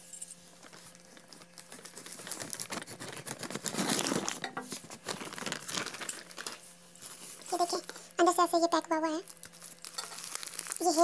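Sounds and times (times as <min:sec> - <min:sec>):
plastic mailer bag crinkling: 0:00.5 - 0:11.0
scissors cutting plastic: 0:01.2 - 0:06.6, 0:09.4 - 0:11.0.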